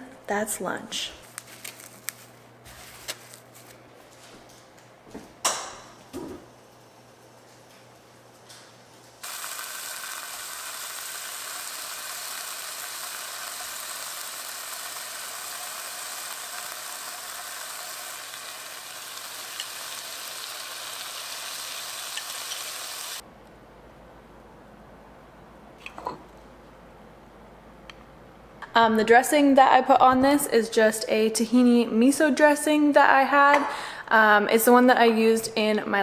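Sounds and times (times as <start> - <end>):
tofu sizzling in a pan: 9.2 - 23.2.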